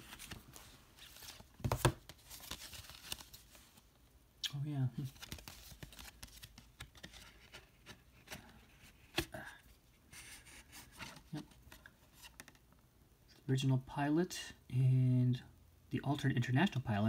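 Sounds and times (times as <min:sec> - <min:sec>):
cardboard sleeve rustling and sliding: 0:00.0 - 0:03.8, 0:10.1 - 0:12.5.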